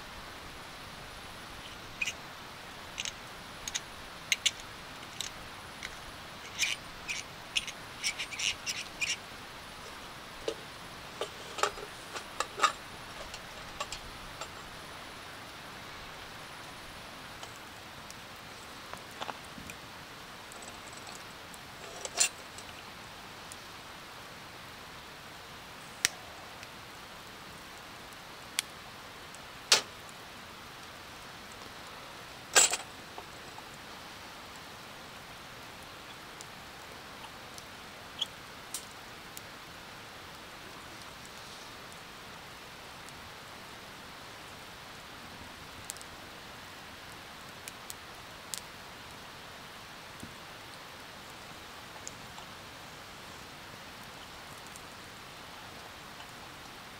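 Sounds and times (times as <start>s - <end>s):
steady soft hiss: 0.0s - 56.9s
sharp clicks and ticks: 3.0s - 9.2s.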